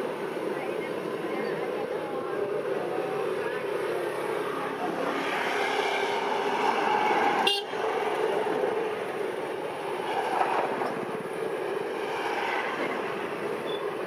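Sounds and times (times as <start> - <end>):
diesel locomotive engine running: 0.0 - 14.0.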